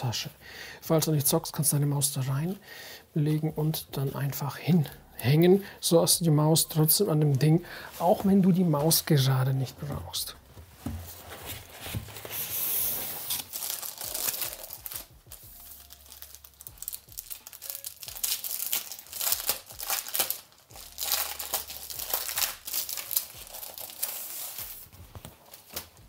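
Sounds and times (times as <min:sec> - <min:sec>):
plastic packaging crinkling: 0:11.1 - 0:26.0.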